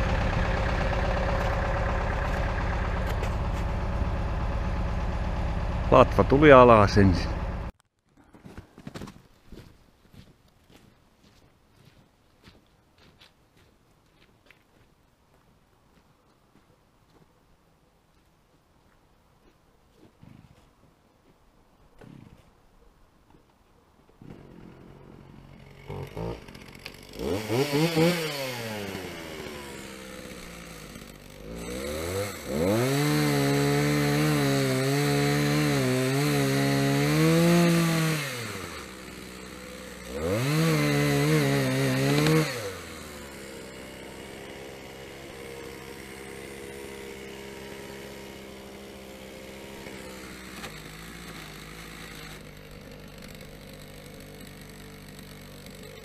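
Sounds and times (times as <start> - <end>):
chainsaw revving and cutting: 0.0 - 7.7, 24.2 - 56.0.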